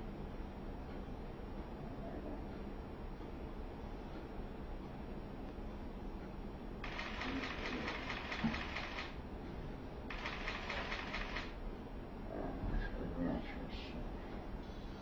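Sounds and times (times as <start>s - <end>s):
steady low hum: 0.0s - 15.0s
rapid mechanical clicking: 6.8s - 9.2s, 10.1s - 11.6s.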